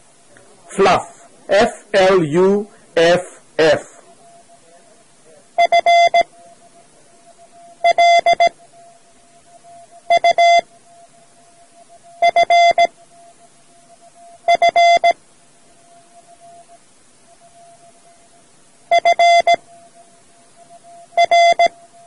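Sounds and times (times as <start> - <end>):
morse code beeping: 0.7 - 4.6, 5.6 - 6.8, 7.7 - 8.7, 10.1 - 10.7, 12.2 - 12.9, 14.5 - 15.2, 18.9 - 19.6, 21.1 - 21.7.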